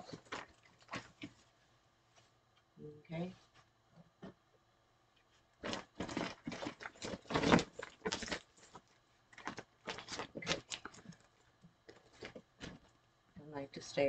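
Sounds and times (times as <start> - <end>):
plastic bag rustling: 0.0 - 2.2, 5.6 - 12.9.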